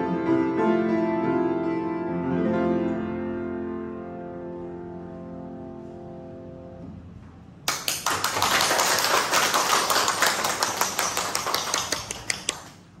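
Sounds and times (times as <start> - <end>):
piano chord: 0.0 - 7.0
small group clapping: 7.7 - 13.0.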